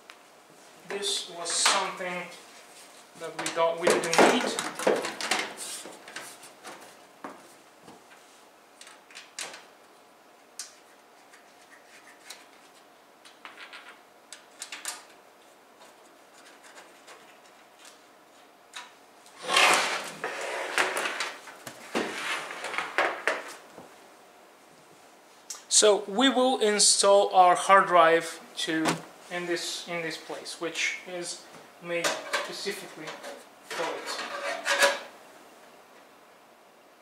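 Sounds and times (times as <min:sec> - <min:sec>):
scraping and rattling: 0:19.3 - 0:23.5, 0:32.1 - 0:35.1.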